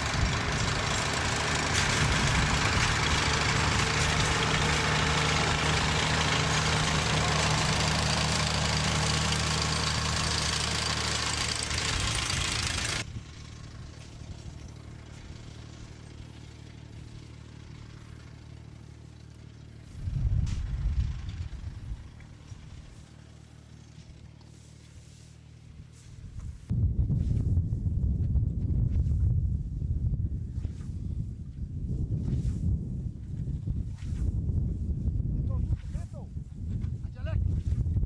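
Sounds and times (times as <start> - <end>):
engine running: 0.0 - 26.8.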